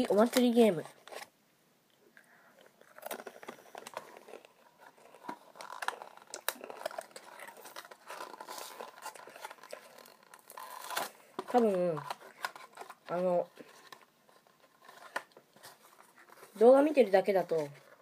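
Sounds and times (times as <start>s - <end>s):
biscuits being chewed: 2.5s - 13.0s.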